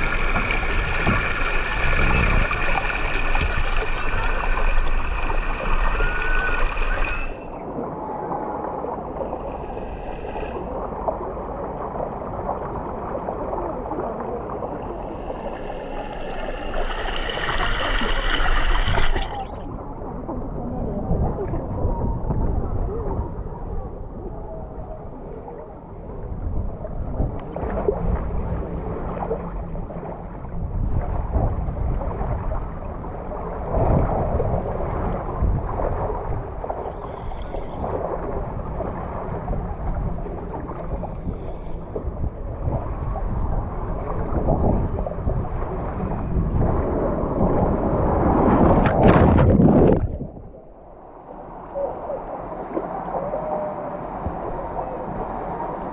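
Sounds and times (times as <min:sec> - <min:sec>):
wind buffeting microphone: 0:00.0 - 0:08.0, 0:16.5 - 0:25.1, 0:30.6 - 0:51.1
water rushing down a waterslide: 0:00.0 - 0:50.4.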